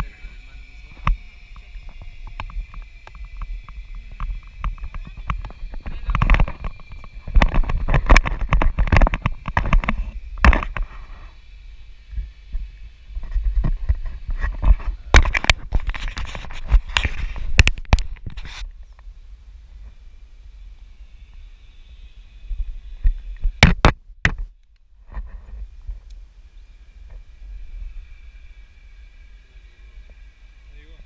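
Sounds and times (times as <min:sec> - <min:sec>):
wind buffeting microphone: 0:00.0 - 0:20.3
faint high whine: 0:00.0 - 0:31.0.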